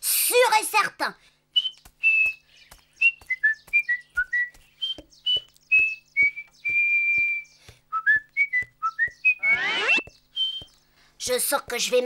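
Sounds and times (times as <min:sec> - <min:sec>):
sharp taps: 0:01.8 - 0:10.8
cartoon whistling tune: 0:03.7 - 0:10.7.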